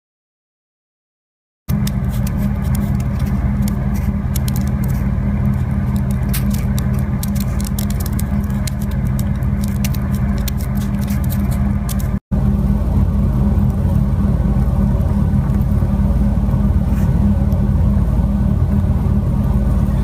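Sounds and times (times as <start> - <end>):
boiling water crackling: 1.7 - 20.0
steady low hum: 1.7 - 20.0.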